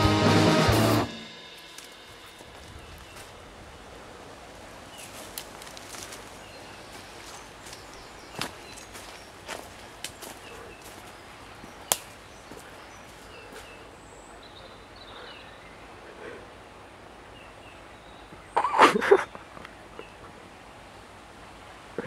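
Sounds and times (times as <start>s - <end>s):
faint bird chirps: 6.0s - 16.2s.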